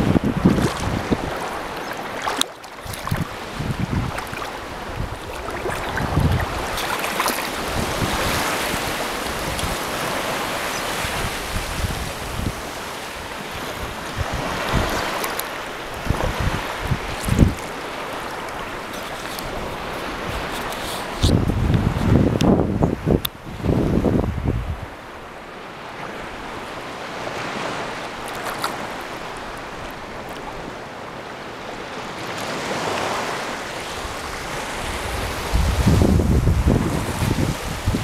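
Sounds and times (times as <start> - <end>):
wind gusting on microphone: 0.0 - 2.1, 2.8 - 25.2, 32.4 - 38.0
small waves lapping on shore: 0.0 - 38.0.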